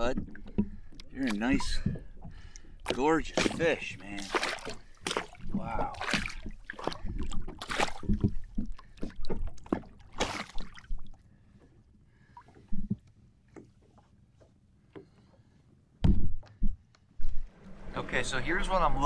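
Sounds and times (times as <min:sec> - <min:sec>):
small knocks and drips: 0:00.0 - 0:15.4
fish splashing in water: 0:01.2 - 0:11.2.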